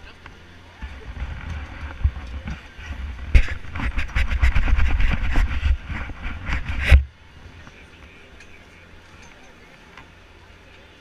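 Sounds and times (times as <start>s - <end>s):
clothing rubbing on camera: 0.8s - 7.0s
knocks and scrapes: 0.8s - 7.1s.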